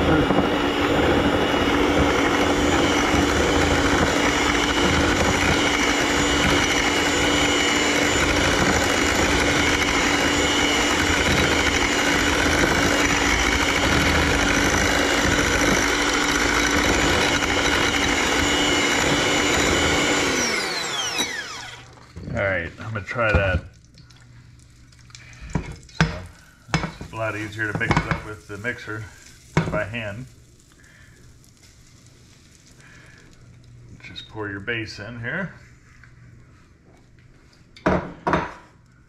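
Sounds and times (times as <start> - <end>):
electric hand mixer running: 0.0 - 22.0.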